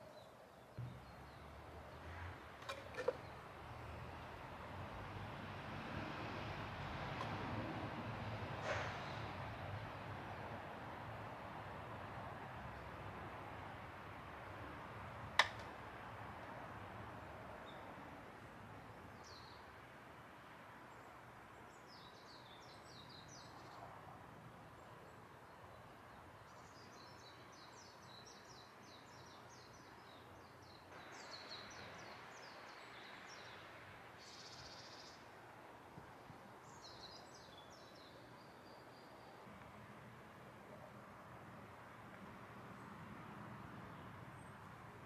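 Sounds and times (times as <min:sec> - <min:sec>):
faint outdoor hiss: 0:00.0 - 0:45.0
songbirds trilling: 0:24.8 - 0:35.4, 0:36.6 - 0:39.5.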